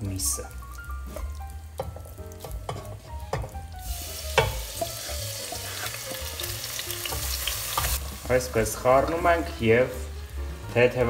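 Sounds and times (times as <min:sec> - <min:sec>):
meat sizzling in oil: 0:00.0 - 0:11.0
spatula scraping frying pan: 0:04.3 - 0:06.3.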